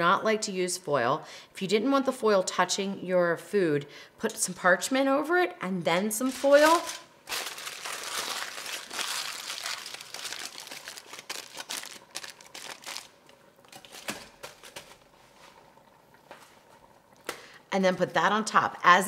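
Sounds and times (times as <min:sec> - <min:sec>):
aluminium foil crinkling: 0:06.2 - 0:15.1.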